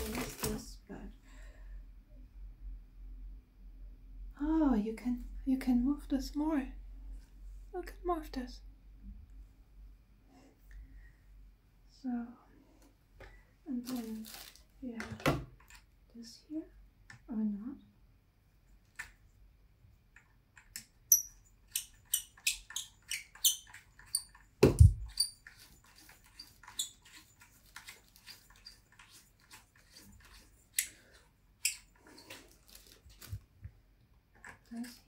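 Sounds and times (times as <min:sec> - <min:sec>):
threaded joint squeaks and clicks: 0:20.6 - 0:31.0, 0:31.6 - 0:33.0.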